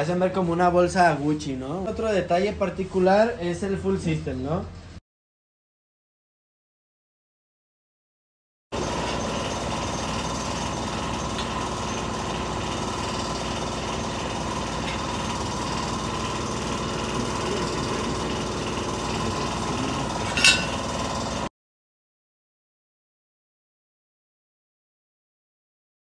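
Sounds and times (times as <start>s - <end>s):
machinery motor running: 8.8s - 21.5s.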